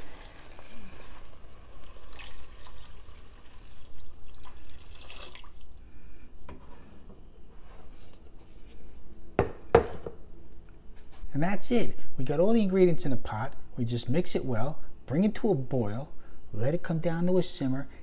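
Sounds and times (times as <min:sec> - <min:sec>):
water pouring into pot: 0:00.0 - 0:05.9.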